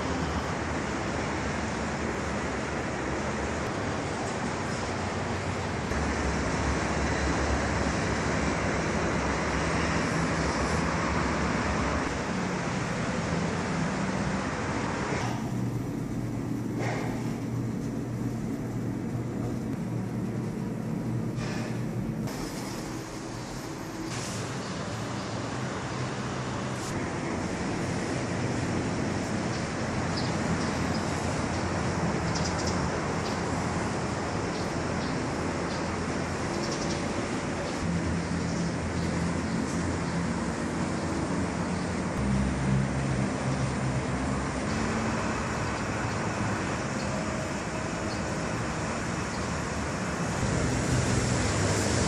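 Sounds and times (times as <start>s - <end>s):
distant road traffic: 0.0s - 52.0s.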